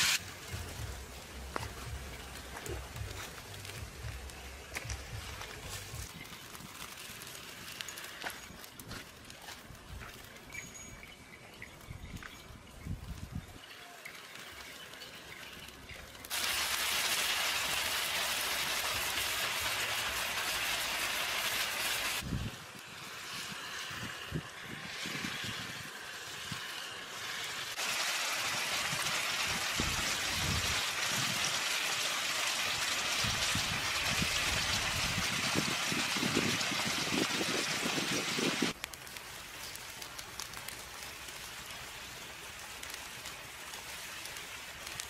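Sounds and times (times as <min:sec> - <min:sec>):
meat frying in a pan: 0:16.2 - 0:45.0.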